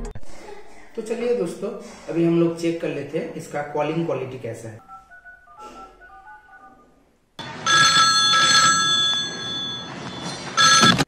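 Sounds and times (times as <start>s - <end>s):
telephone bell ringing: 7.4s - 11.0s.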